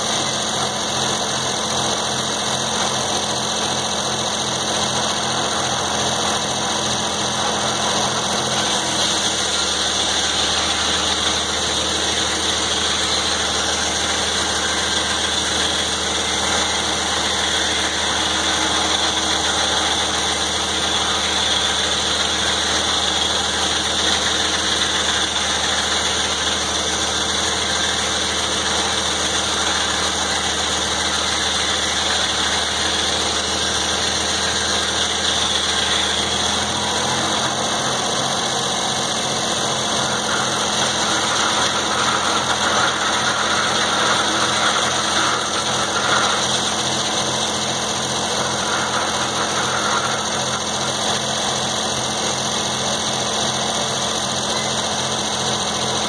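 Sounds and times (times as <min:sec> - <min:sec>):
sawmill running: 0:00.0 - 0:56.0.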